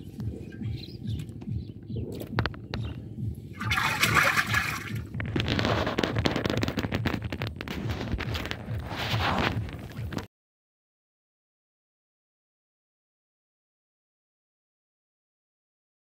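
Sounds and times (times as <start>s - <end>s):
muddy water splashing: 3.4s - 10.2s.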